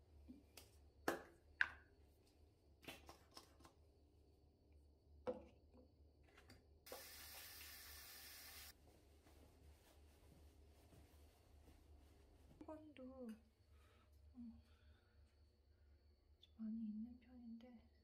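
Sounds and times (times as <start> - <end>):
tap running into basin: 6.9 - 8.7.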